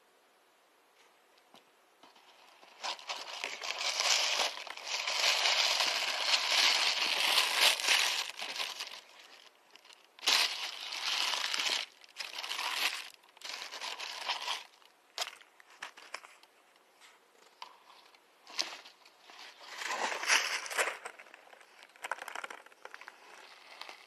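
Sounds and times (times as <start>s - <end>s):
tissue paper crinkling: 2.1s - 16.4s.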